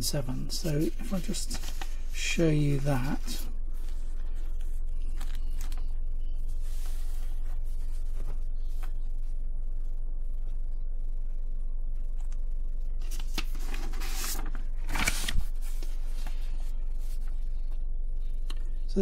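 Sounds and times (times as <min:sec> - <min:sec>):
low electrical hum: 0:00.0 - 0:19.0
paper rustling: 0:00.5 - 0:09.1, 0:13.0 - 0:17.6.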